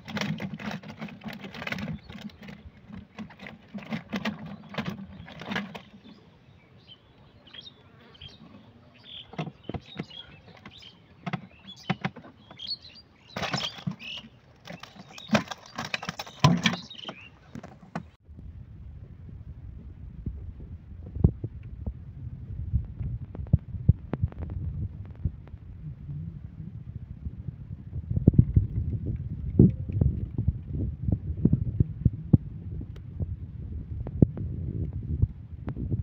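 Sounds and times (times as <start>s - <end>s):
birds chirping: 1.5s - 18.2s.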